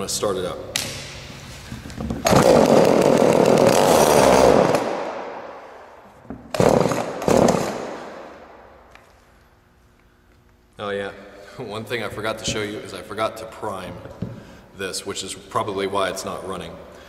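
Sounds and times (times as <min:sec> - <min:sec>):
chainsaw engine firing: 0:02.2 - 0:05.3, 0:06.5 - 0:08.1.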